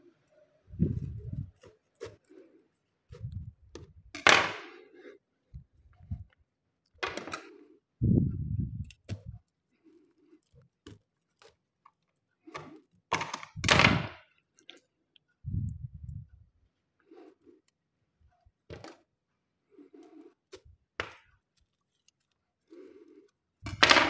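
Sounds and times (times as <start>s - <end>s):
knife scraping fruit husk: 1.1s - 3.5s.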